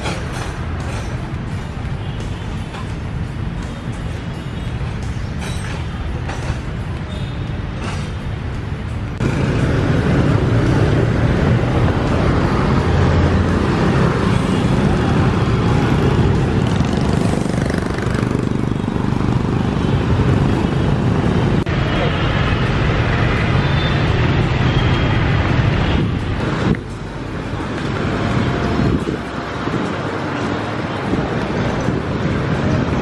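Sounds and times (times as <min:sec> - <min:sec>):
street traffic passing: 0:00.0 - 0:33.0.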